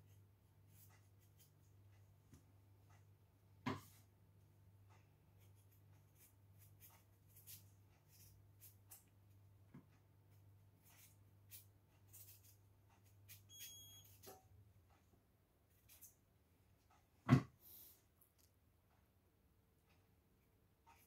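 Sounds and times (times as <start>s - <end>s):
knife peeling a potato: 5.3s - 9.3s, 10.3s - 14.2s.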